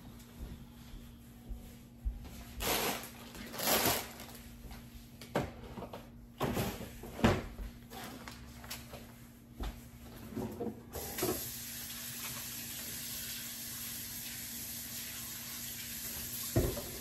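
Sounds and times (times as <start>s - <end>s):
plastic bags rustling: 2.5s - 4.7s.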